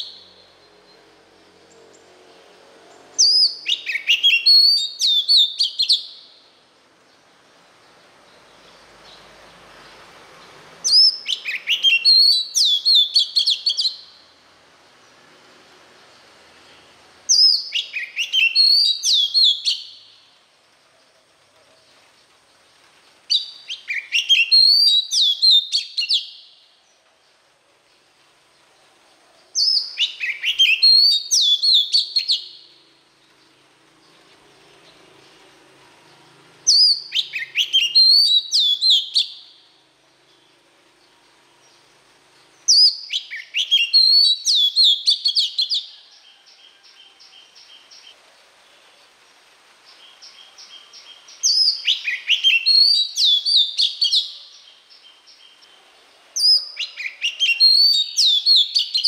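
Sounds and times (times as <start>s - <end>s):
bird whistled song phrases: 3.2s - 6.4s, 10.8s - 14.2s, 17.3s - 20.2s, 23.3s - 26.6s, 29.6s - 32.7s, 36.7s - 39.6s, 42.7s - 46.4s, 50.0s - 55.2s, 56.4s - 59.0s.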